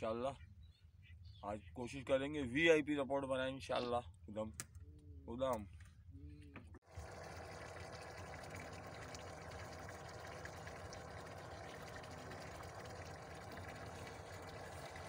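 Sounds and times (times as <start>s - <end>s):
water rushing around boat: 6.9s - 15.0s.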